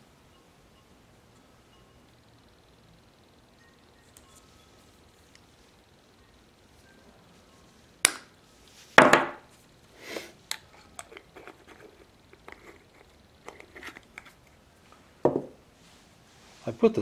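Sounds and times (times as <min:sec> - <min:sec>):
knock on tabletop: 0:09.0 - 0:09.4, 0:15.2 - 0:15.6.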